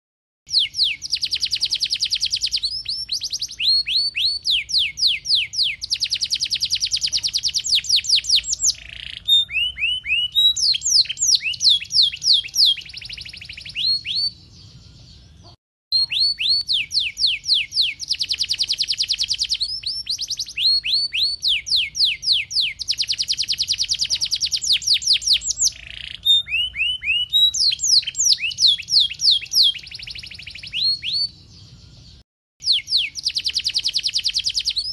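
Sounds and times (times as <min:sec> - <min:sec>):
canary singing trills: 0:00.5 - 0:34.9.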